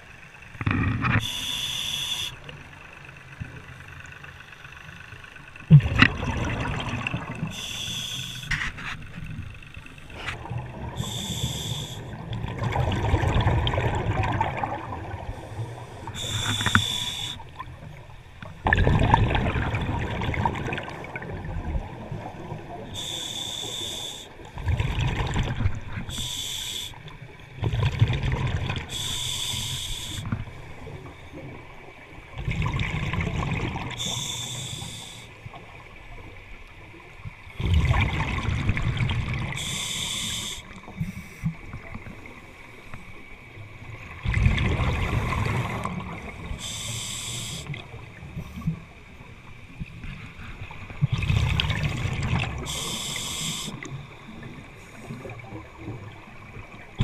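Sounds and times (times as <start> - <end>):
regulator inhalation hiss: 1.2 - 2.5, 7.5 - 8.6, 11.0 - 12.2, 15.3 - 17.5, 22.9 - 24.4, 26.1 - 27.1, 28.9 - 30.4, 34.0 - 35.4, 39.5 - 41.5, 46.5 - 47.8, 52.6 - 55.0
exhaled bubbles rushing: 5.7 - 7.6, 12.1 - 15.4, 18.6 - 22.7, 27.6 - 28.9, 37.5 - 39.6, 44.1 - 46.6, 50.9 - 52.8.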